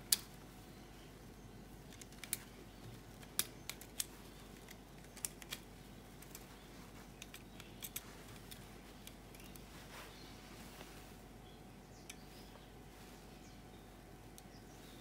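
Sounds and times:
plastic clicks and snaps: 0.1 - 0.3, 1.9 - 2.5, 3.2 - 6.5, 7.2 - 9.7.

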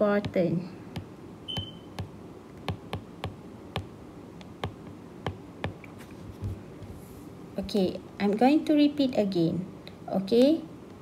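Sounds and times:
stylus tapping on glass screen: 0.2 - 3.9, 4.5 - 5.9.

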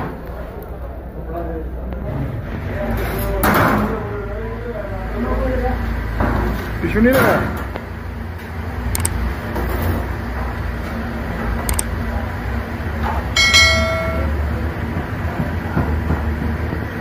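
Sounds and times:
street hubbub: 0.0 - 17.0.

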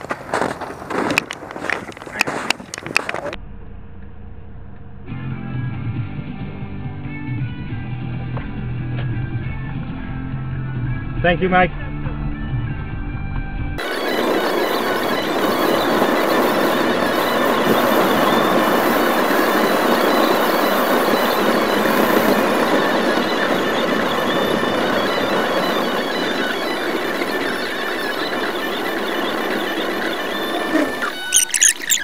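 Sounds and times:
sped-up high squealing hiss: 13.8 - 32.0.

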